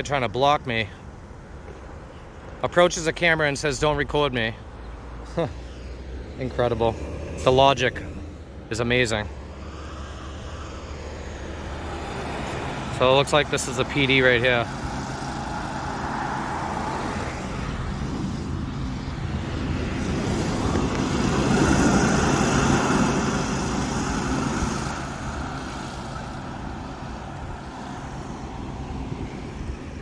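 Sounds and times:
car driving past: 4.9s - 13.0s.

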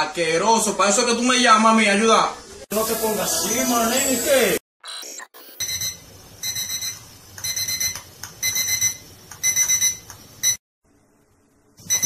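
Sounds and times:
digital alarm clock beeping: 5.6s - 10.6s.

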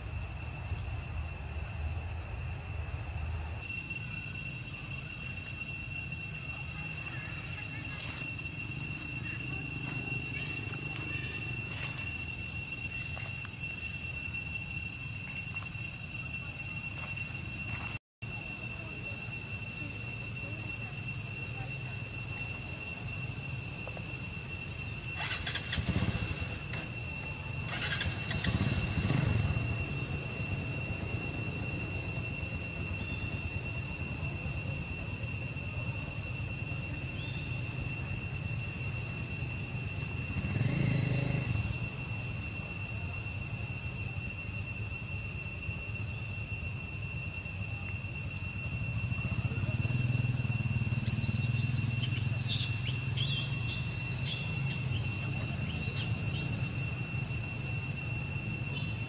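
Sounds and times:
high-pitched insect drone: 0.0s - 59.0s.

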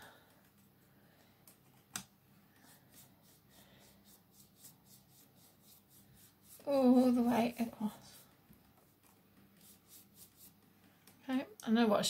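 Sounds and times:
paintbrush scratching on paper: 2.6s - 10.6s.

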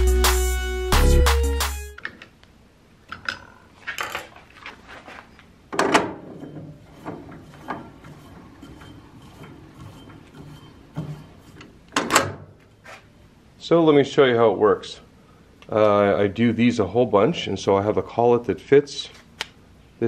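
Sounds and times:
metal clunks and clatter: 5.7s - 12.6s.

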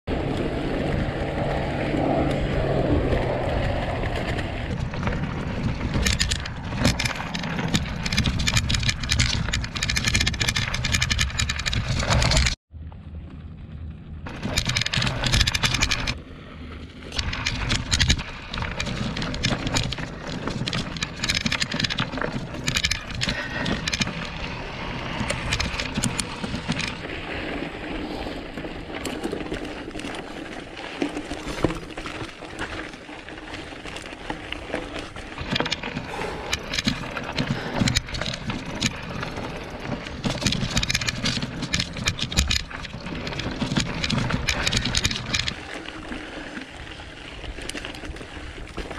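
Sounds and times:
wind buffeting microphone: 0.1s - 12.2s
bike rattling over rocks: 0.1s - 12.6s, 13.6s - 48.9s.

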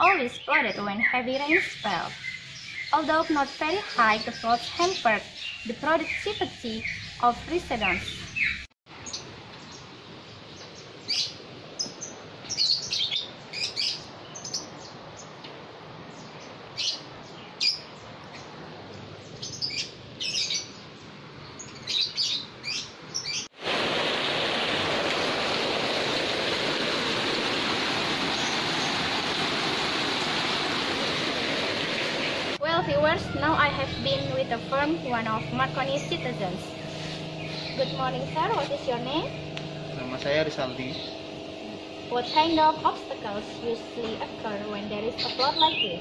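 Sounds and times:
small birds chirping: 0.0s - 23.5s, 32.2s - 46.0s
rushing flood water: 23.6s - 32.6s.

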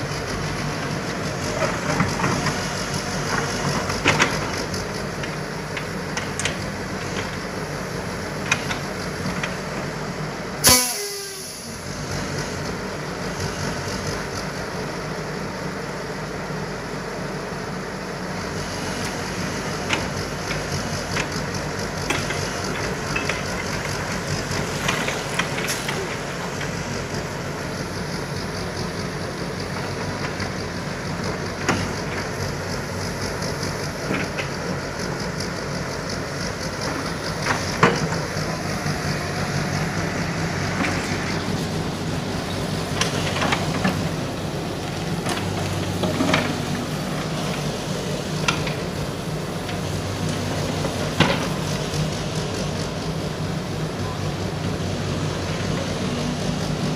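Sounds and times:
diesel engine running: 0.0s - 56.9s
excavator bucket scraping dirt: 39.0s - 49.1s.

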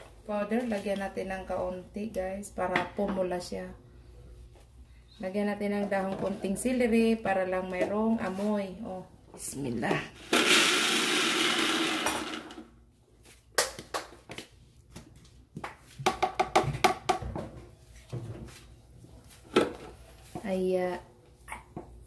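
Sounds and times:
electric mixer grinder running: 10.2s - 12.7s.

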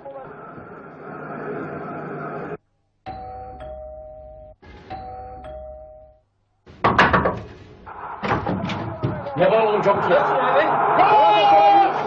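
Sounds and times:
two-tone doorbell: 3.1s - 6.2s
loud thumps: 6.7s - 9.3s.

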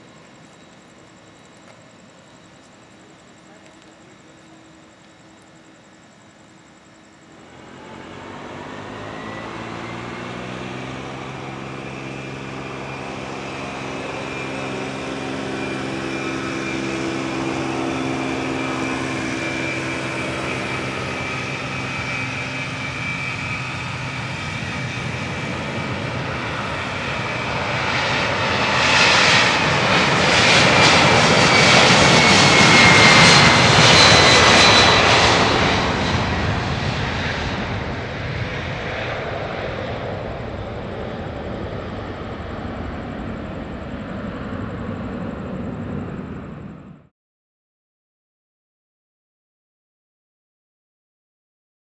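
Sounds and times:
jet engines whine and roar: 0.0s - 47.1s.

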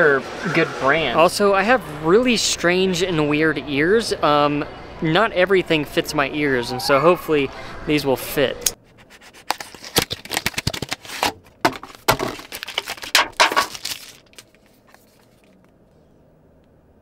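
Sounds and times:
cardboard scraping: 8.9s - 15.6s
plastic wrap crinkling: 9.0s - 15.7s.

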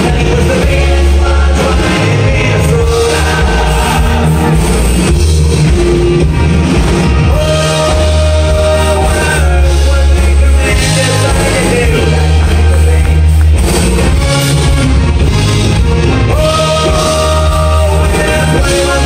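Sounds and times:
man singing into a microphone: 0.0s - 4.5s, 7.3s - 13.4s, 16.3s - 19.0s
live rock band playing: 0.0s - 19.0s.

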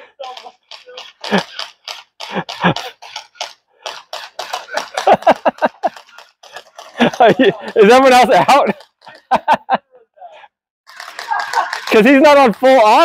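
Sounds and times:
gel blasters popping: 0.2s - 7.2s.

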